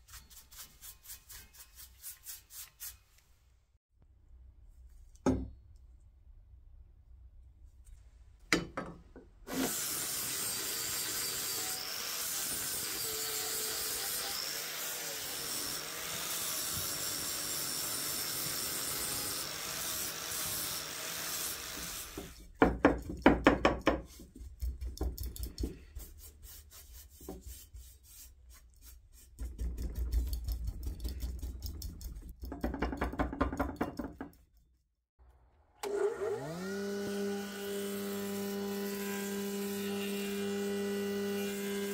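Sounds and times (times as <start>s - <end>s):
paintbrush swishing on steel: 0.0s - 3.6s, 25.5s - 29.6s
jointer-planer motor starting: 35.8s - 37.7s.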